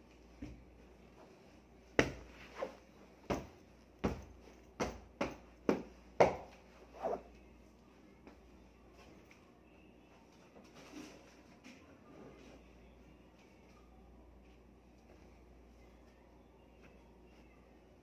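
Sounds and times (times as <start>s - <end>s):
pillow being beaten by hand: 1.8s - 6.6s.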